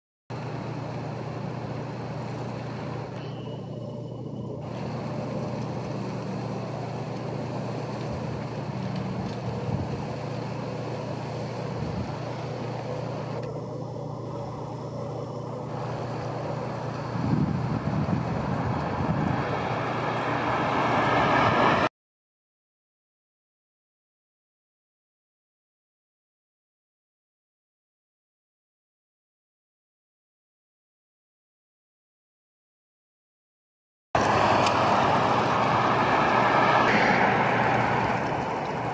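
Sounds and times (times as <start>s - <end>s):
distant road traffic: 0.3s - 21.9s, 34.2s - 38.9s.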